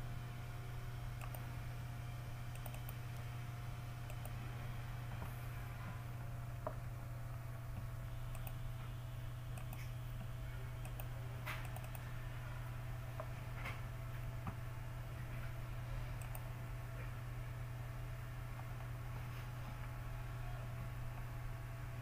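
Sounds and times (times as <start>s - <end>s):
steady low hum: 0.0s - 22.0s
computer mouse clicking: 1.2s - 1.5s, 2.5s - 3.3s, 4.0s - 4.4s, 7.7s - 8.6s, 9.5s - 12.1s, 16.2s - 16.5s.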